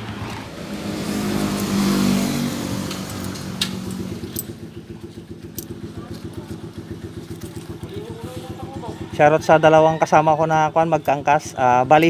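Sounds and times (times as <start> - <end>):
motorcycle engine at low speed: 0.0 - 12.0
small motorcycle engine idling: 2.8 - 12.0.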